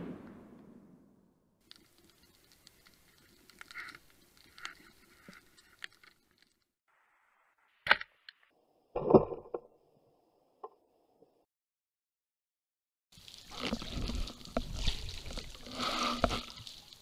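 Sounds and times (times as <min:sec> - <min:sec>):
underwater clicking and crackling: 0:01.6 - 0:06.7, 0:13.2 - 0:17.0.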